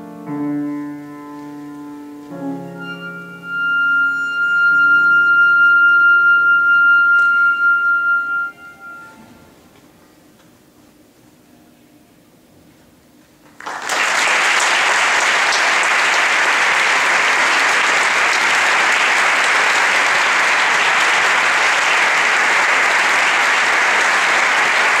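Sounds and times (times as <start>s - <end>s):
audience applause: 13.4s - 25.0s.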